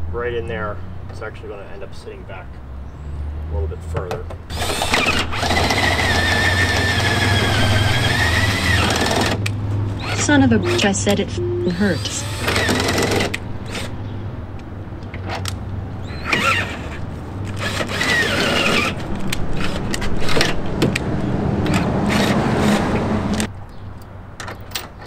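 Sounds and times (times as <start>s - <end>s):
cordless drill cutting metal: 4.5s - 9.4s, 10.0s - 11.0s, 11.8s - 13.9s, 16.0s - 17.0s, 17.6s - 19.0s, 21.7s - 22.8s.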